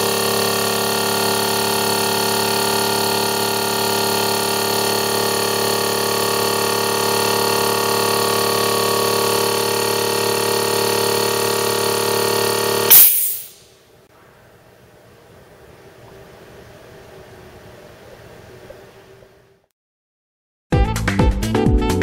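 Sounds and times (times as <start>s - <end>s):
air compressor running: 0.0s - 13.7s
sharp hiss of air release: 12.9s - 13.6s.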